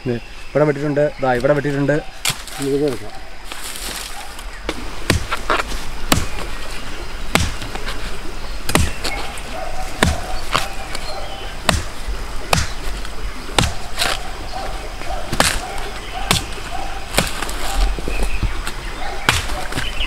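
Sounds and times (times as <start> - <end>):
billhook chopping bamboo: 4.7 - 6.5, 7.3 - 7.9, 8.7 - 9.2, 9.9 - 14.2, 15.3 - 17.9, 18.6 - 20.0.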